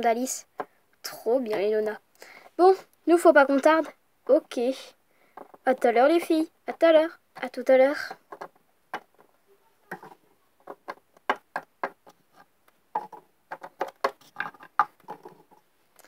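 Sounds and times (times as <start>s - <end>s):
plastic figurines tapping on wood: 0.5s - 0.8s, 5.3s - 5.8s, 6.7s - 15.6s.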